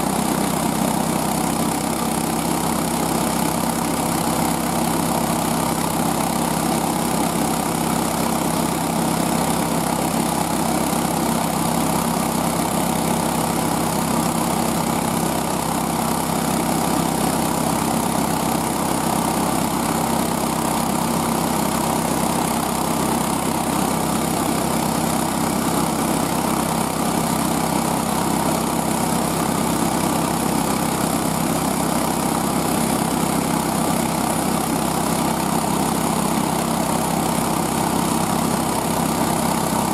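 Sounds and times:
small gas engine running: 0:00.0 - 0:39.9.

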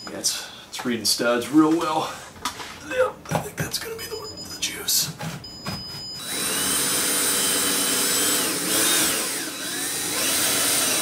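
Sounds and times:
cordless drill whining: 0:06.2 - 0:11.0.

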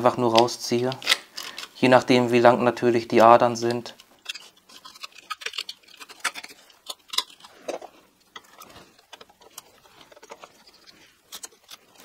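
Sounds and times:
screwdriver clicking and scraping: 0:03.6 - 0:12.0.

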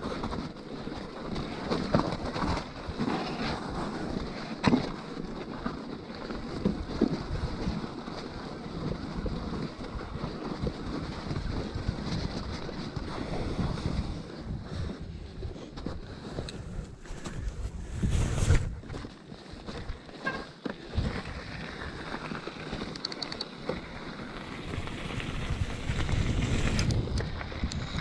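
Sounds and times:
bike knocking and rattling: 0:00.0 - 0:17.8, 0:18.6 - 0:28.0
tyres rolling through snow: 0:00.0 - 0:28.0
wind buffeting microphone: 0:08.9 - 0:19.0, 0:24.3 - 0:28.0.

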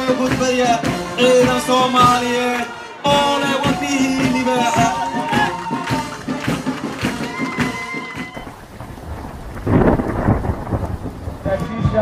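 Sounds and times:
background music with a beat: 0:00.0 - 0:08.4
low rumbling rush of noise: 0:08.4 - 0:12.0.

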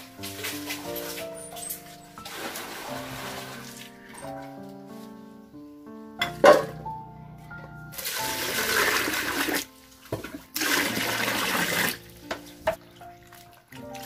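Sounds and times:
water pouring into basin: 0:02.2 - 0:04.2, 0:07.9 - 0:12.1, 0:13.0 - 0:14.0.

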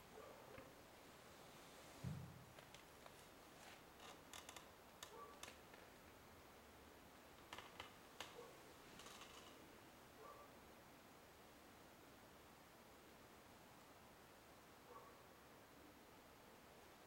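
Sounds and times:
small clicks and ticks: 0:04.0 - 0:05.9.

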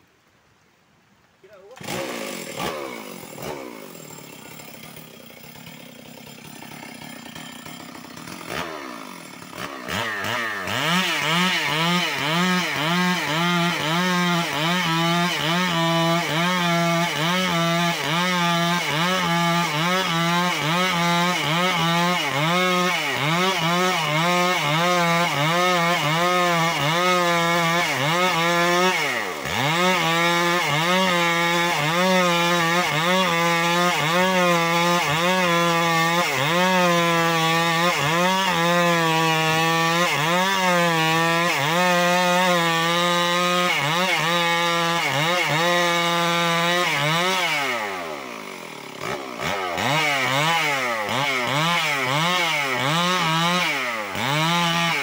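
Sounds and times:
chainsaw cutting log: 0:01.4 - 0:55.0.

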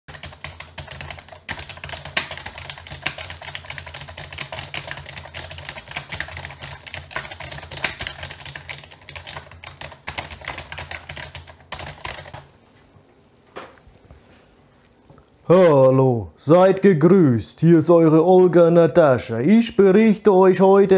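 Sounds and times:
typing on computer keyboard: 0:00.1 - 0:12.5.

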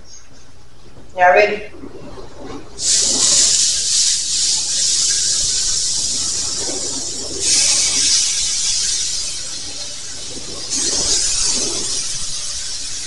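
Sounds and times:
chicken sizzling on griddle: 0:02.8 - 0:13.0.

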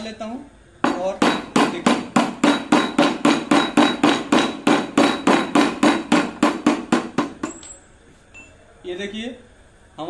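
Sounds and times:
rapid metal taps: 0:00.8 - 0:07.8.

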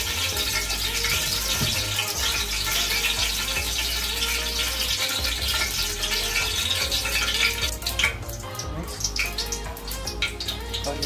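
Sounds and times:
onion sizzling in hot oil: 0:00.0 - 0:11.0.

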